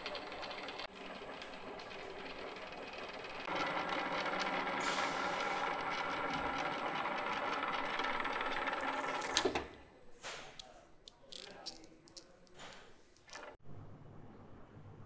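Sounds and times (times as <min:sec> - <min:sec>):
machine mechanical whir: 0:00.0 - 0:10.1.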